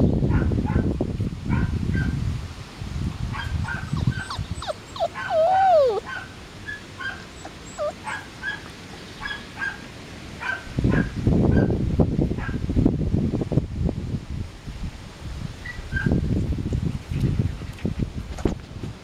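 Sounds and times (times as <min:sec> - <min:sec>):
puppies yipping and whimpering: 0:03.6 - 0:09.8.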